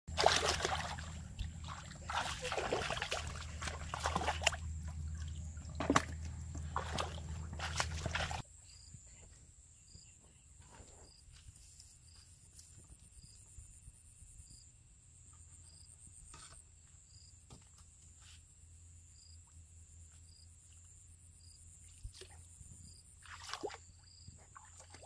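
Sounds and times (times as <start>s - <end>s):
muddy water splashing: 0.1s - 8.4s, 23.2s - 25.0s
low steady hum: 0.1s - 10.6s.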